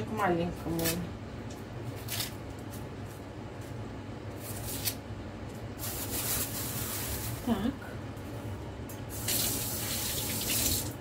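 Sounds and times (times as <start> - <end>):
knife scraping onion skin: 2.0 - 2.4, 4.4 - 5.1
dishwasher humming: 5.7 - 11.0.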